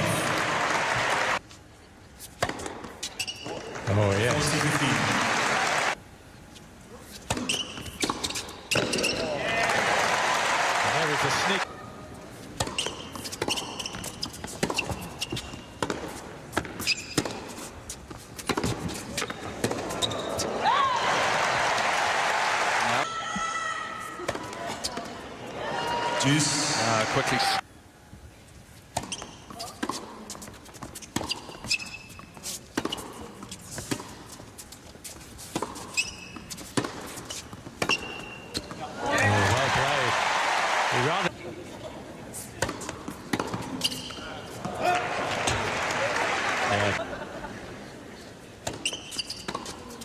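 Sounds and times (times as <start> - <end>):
shoes squeaking on court: 2.2 - 4.8, 6.5 - 9.4, 12.3 - 20.6, 28.8 - 39.4, 42.4 - 45.0, 48.6 - 50.0
racket hitting tennis ball: 2.3 - 3.2, 7.2 - 9.2, 12.5 - 20.1, 28.9 - 34.3, 35.4 - 38.8, 42.6 - 45.7.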